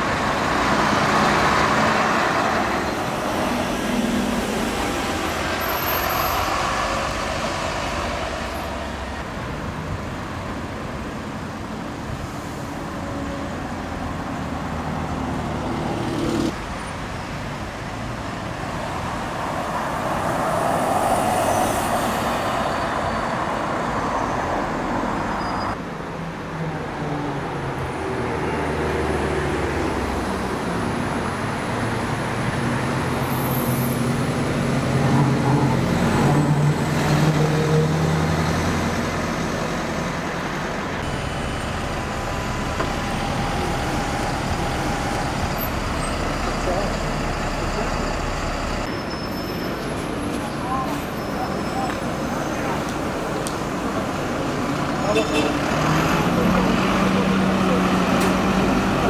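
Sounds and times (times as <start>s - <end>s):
bus engines: 0.0s - 59.0s
street traffic noise: 0.0s - 59.0s.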